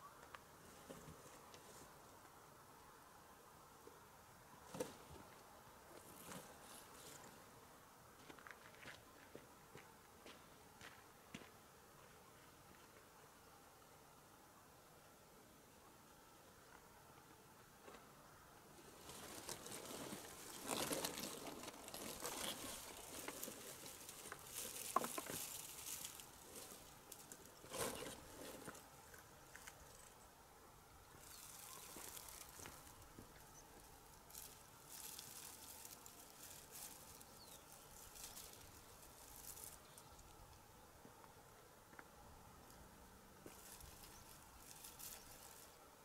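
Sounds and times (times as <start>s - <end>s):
dry stalks and cardboard rustling: 4.6s - 7.4s, 18.8s - 30.2s, 31.1s - 40.6s, 43.4s - 45.8s.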